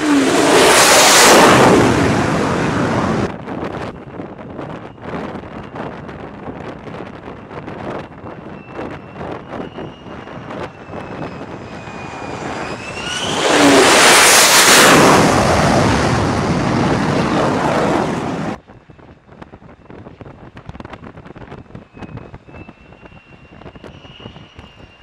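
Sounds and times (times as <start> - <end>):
faint wind noise: 0.0 - 25.0
jet engine whine and roar: 0.0 - 25.0.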